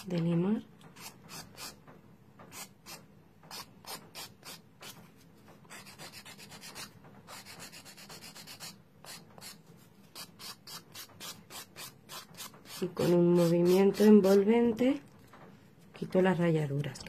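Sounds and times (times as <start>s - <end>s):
nail file rasping: 1.0s - 1.8s, 2.5s - 5.0s, 5.7s - 14.5s.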